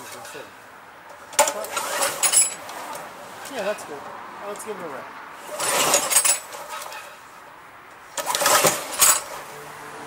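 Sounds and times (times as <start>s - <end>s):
recoil starter cord pulled: 8.2s - 9.3s.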